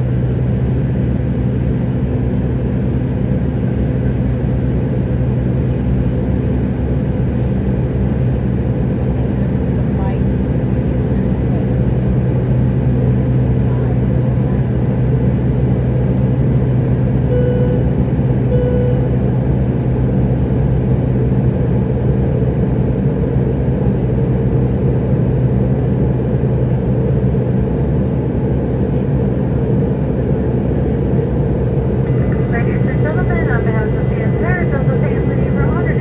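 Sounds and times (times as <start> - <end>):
airplane cabin engine drone: 0.0 - 36.0.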